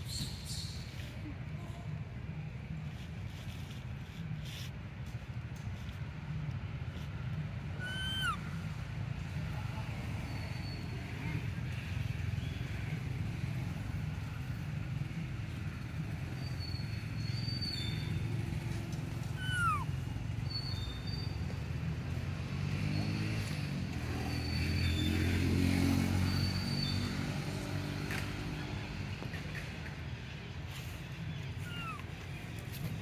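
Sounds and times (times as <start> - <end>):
low traffic rumble: 0.0 - 33.0
high chirps: 7.8 - 8.4, 19.3 - 19.9.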